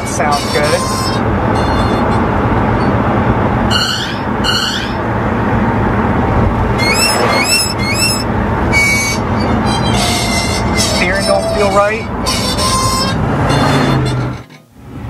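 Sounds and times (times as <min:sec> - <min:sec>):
car engine and road rumble: 0:00.0 - 0:15.0
high rising squeaks: 0:03.6 - 0:14.6.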